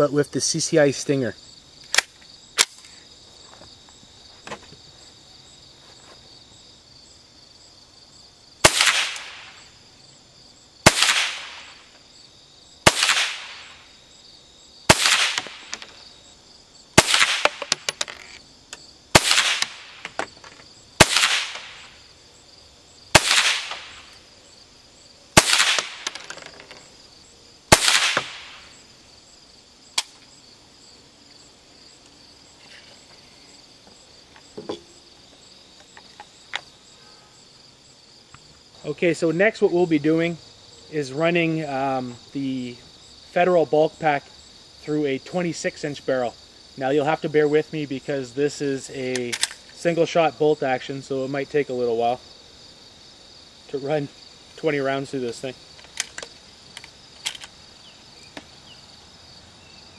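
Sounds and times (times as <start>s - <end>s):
rifle shots cracking: 8.6s - 9.6s, 10.8s - 11.8s, 12.8s - 13.8s, 14.9s - 16.0s, 17.0s - 17.8s, 19.1s - 20.1s, 21.0s - 22.0s, 23.1s - 24.1s, 25.4s - 26.2s, 27.7s - 28.7s.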